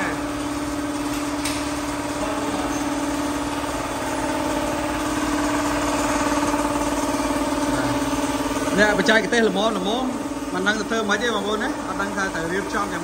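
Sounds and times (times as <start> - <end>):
air compressor motor hum: 0.0 - 13.0.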